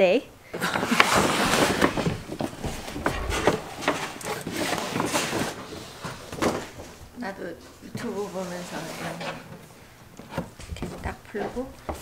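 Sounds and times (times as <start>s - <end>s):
paper bag rustling and crinkling: 0.6s - 7.1s.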